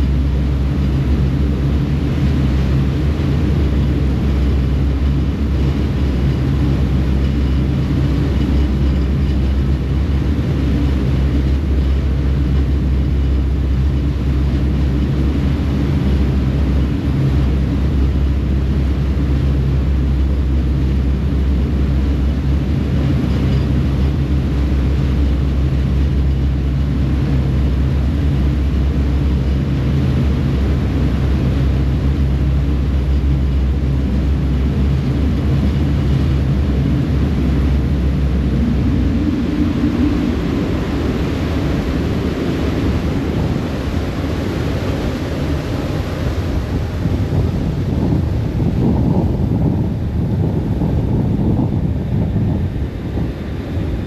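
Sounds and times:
churning wake water rushing: 0.0s - 54.0s
ferry engine droning: 0.0s - 54.0s.

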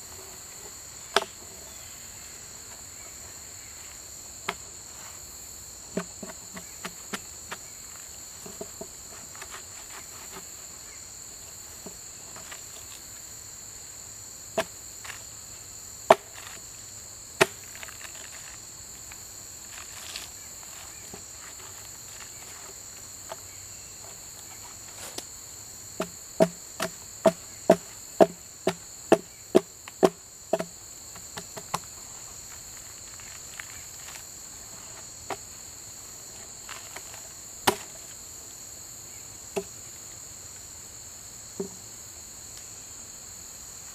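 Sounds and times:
insects chirping: 0.0s - 43.9s
hatchet chopping log bark: 1.1s - 1.4s, 16.1s - 16.6s, 17.4s - 18.0s, 26.0s - 31.8s, 37.6s - 38.0s.

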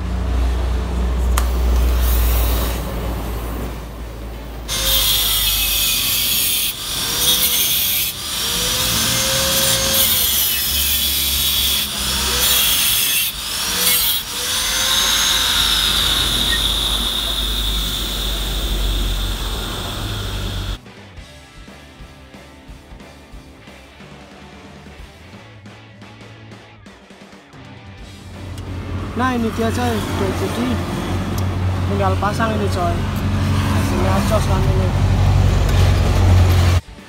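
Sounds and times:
angle grinder cutting metal: 4.7s - 20.8s.

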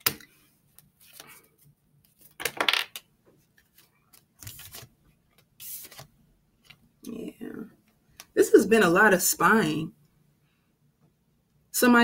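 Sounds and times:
cards rustling: 0.0s - 6.8s
cards clicking on wooden table: 2.2s - 3.1s.

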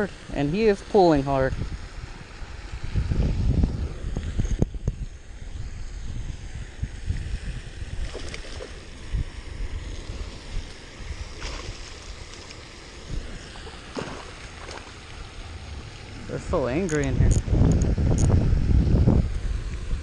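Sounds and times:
wind on microphone: 0.0s - 12.3s, 13.0s - 14.8s, 15.6s - 20.0s
water splashing: 7.1s - 20.0s.

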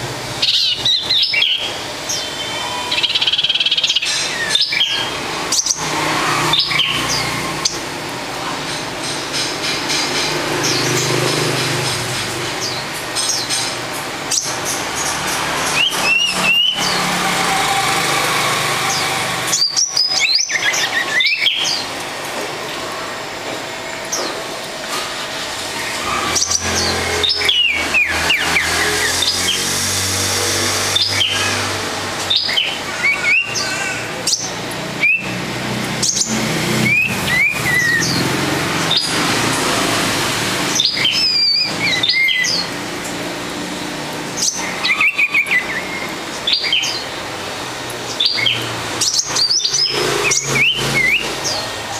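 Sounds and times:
sharp clicks and knocks: 8.6s - 15.8s.

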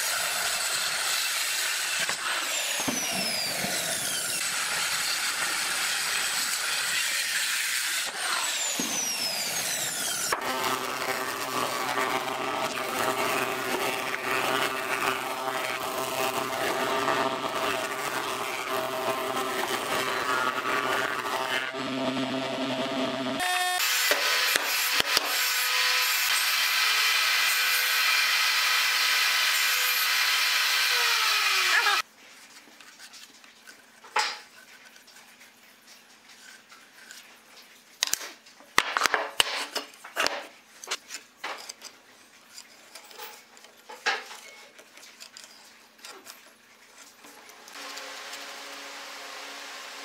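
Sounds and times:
planer running: 8.1s - 25.4s, 47.7s - 50.0s.

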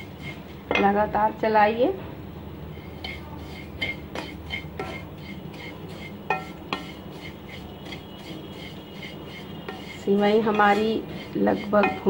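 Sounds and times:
wooden spatula scraping pan: 0.0s - 1.1s, 2.7s - 12.0s
spatula knocking against pan: 3.0s - 12.0s.

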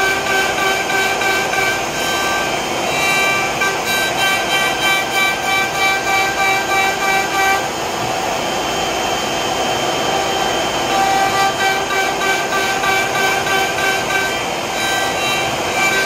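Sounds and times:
bit carving wood: 0.0s - 7.6s, 10.9s - 16.0s
router spindle whining: 0.0s - 16.0s.

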